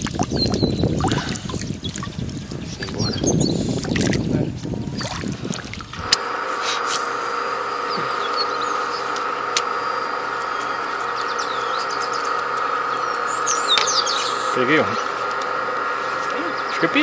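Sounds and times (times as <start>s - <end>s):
water splashing and churning: 0.0s - 6.8s
steady even hum: 0.0s - 17.0s
bird chirps: 0.3s - 1.0s, 7.7s - 9.2s, 9.8s - 14.7s.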